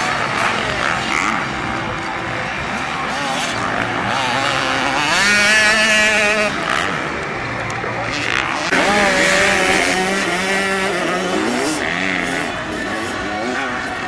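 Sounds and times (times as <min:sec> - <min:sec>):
dirt bike engines revving: 0:00.0 - 0:14.0.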